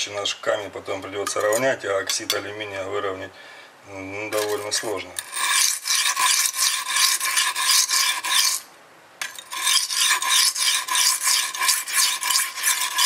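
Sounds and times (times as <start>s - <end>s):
knife rasping on whetstone: 4.4s - 13.0s.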